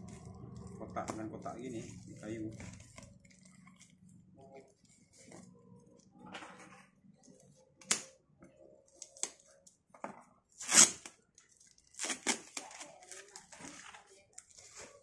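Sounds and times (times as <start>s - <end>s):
knife slitting packing tape: 10.6s - 11.2s, 11.9s - 12.9s
tape ripping off cardboard: 10.6s - 11.2s, 11.9s - 12.8s.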